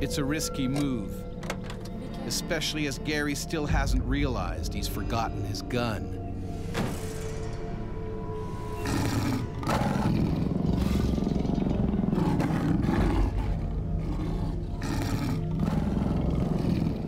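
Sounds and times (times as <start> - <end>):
background music: 0.0 - 17.0
lion growling: 8.4 - 17.0.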